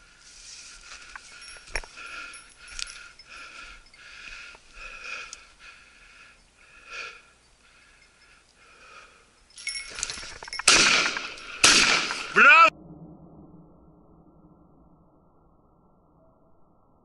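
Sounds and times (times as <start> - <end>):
person breathing hard: 0.0 - 10.2.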